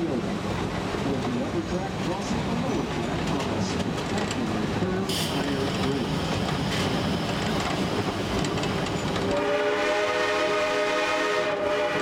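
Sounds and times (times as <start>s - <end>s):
train cars rumbling and clattering: 0.0s - 12.0s
steam locomotive whistle: 9.2s - 12.0s.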